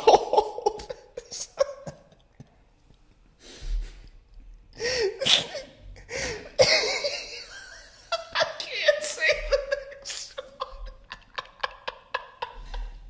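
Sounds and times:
man's stifled laughter: 6.3 - 13.0.

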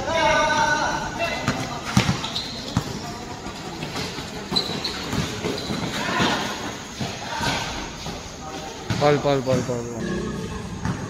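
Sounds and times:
crowd noise: 0.0 - 11.0
shoe squeaks on court: 1.2 - 9.8.

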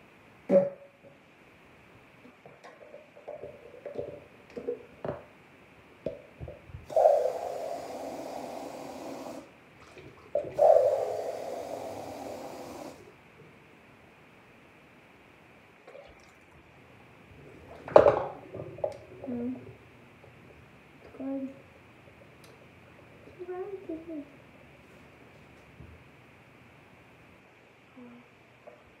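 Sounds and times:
person blowing hissing breaths: 6.9 - 9.5, 10.6 - 13.1.

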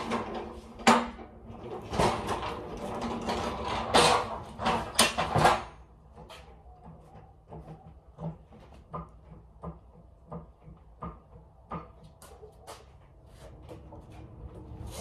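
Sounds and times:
freight clattering and banging: 0.0 - 11.1.

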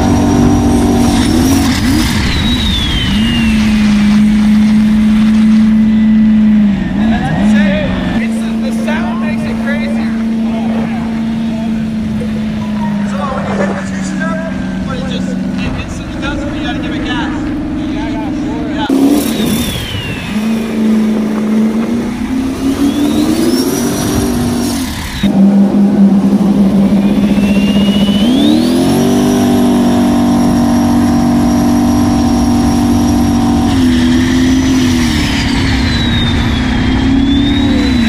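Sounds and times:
wind and spray rushing: 0.0 - 6.6, 18.9 - 25.4
jet boat engine running hard: 0.0 - 38.0
turbo whistle: 1.4 - 6.7, 22.4 - 25.3, 26.7 - 30.7, 33.7 - 38.0.

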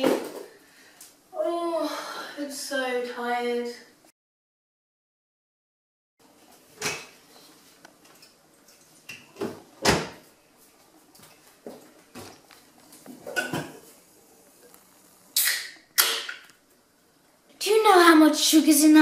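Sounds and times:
kitchen doors clunking: 9.3 - 10.2.

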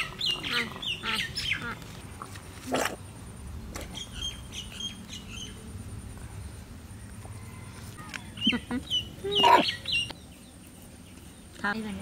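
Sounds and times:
chicken squawking: 9.2 - 9.8.

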